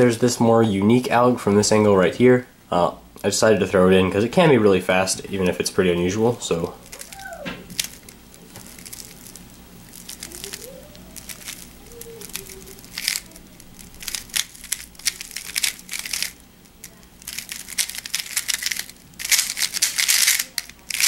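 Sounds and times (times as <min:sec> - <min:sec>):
puzzle cube clicking as turned: 0:10.0 - 0:21.0.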